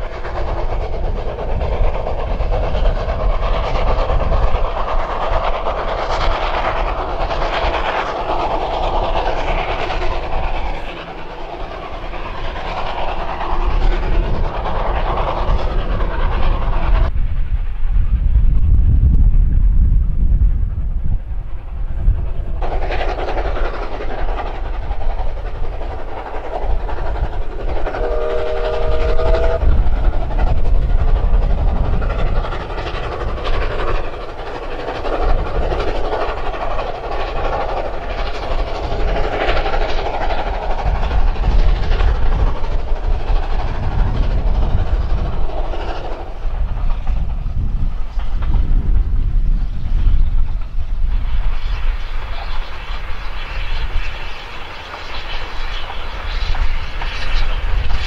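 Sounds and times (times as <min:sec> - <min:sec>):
steam locomotive rumbling past: 0:00.0 - 0:58.0
steam whistle chord: 0:28.0 - 0:29.6.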